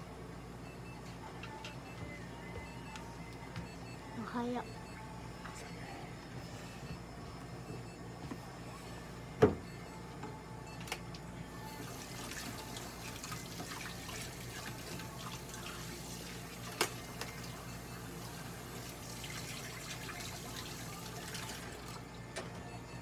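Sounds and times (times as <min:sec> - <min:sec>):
steady low hum: 0:00.0 - 0:13.4.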